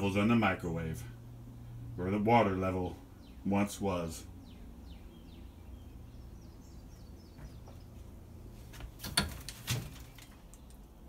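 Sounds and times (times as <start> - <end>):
low steady hum: 0.0 - 11.0
faint bird chirps: 4.3 - 8.1.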